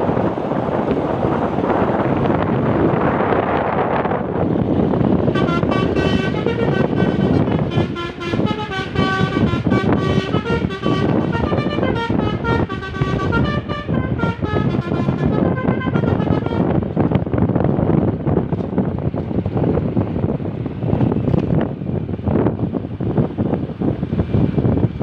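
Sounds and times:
road noise: 0:00.0 - 0:25.0
wind buffeting: 0:00.0 - 0:25.0
multi-tone horn melody: 0:05.2 - 0:16.8.

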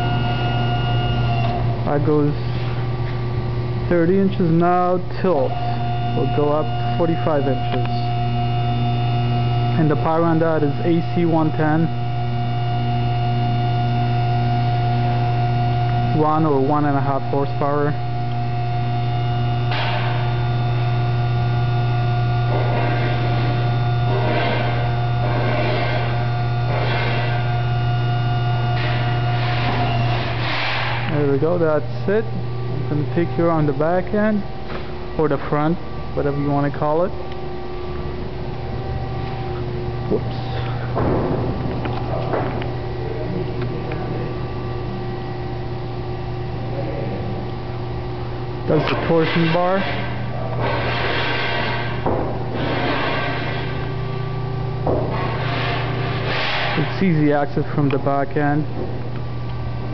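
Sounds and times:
electric motor and pump humming: 0:00.0 - 0:59.9.

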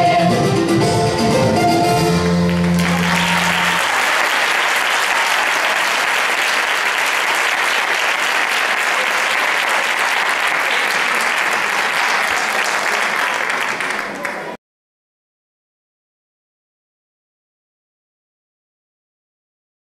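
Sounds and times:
audience applauding: 0:02.2 - 0:14.6.

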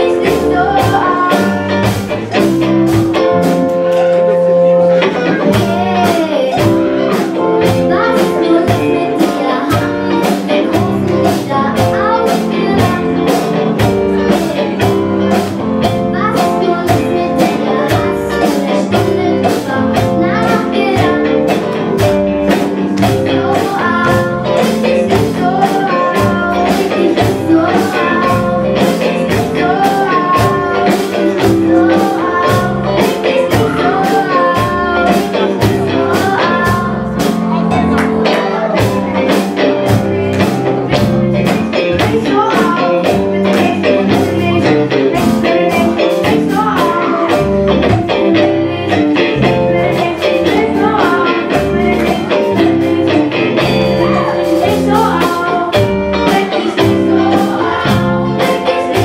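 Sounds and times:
children singing pop song: 0:00.0 - 0:03.6, 0:04.9 - 0:59.0
drum beat: 0:00.0 - 0:04.2, 0:05.0 - 0:59.0
bass line: 0:00.0 - 0:59.0.

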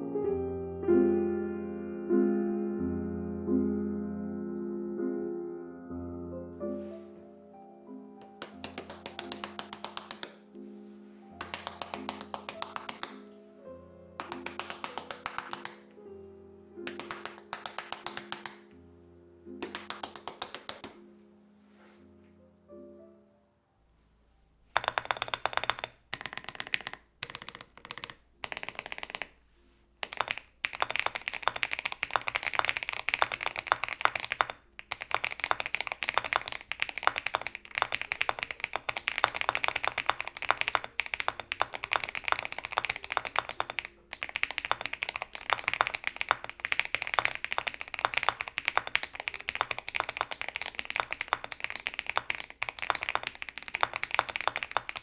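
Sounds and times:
mechanical keyboard key clacks: 0:24.8 - 0:29.3.

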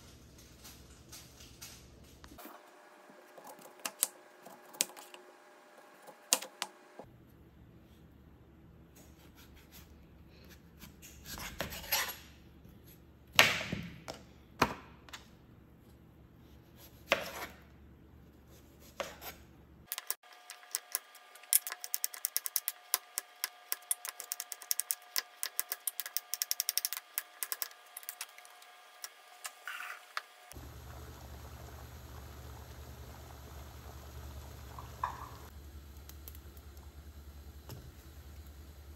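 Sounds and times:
knife cutting on a cutting board: 0:09.0 - 0:12.2, 0:16.7 - 0:17.6, 0:18.5 - 0:19.4
saucepan of water steaming: 0:30.5 - 0:38.9.

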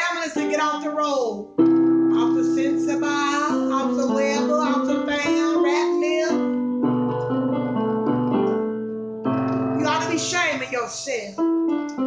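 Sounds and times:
electronic keyboard chords: 0:00.0 - 0:12.0
woman singing gospel: 0:02.2 - 0:06.3.

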